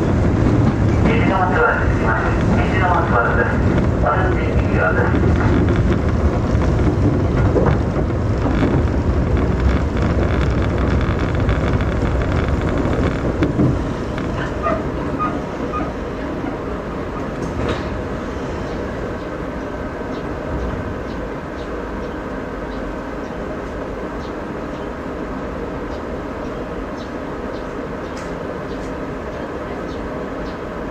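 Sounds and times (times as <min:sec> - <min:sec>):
steady train hum: 0:00.0 - 0:30.9
train running rumble: 0:00.0 - 0:30.9
clicks over rail joints: 0:05.1 - 0:15.3.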